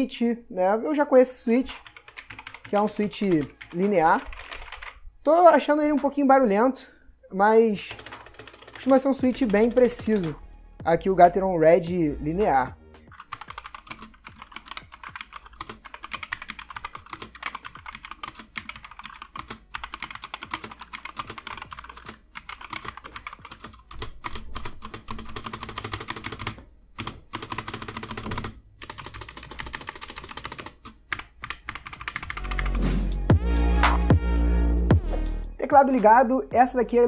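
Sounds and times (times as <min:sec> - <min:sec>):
fast mechanical keyboard typing: 0:01.7 - 0:05.0, 0:07.8 - 0:10.4, 0:13.1 - 0:32.7.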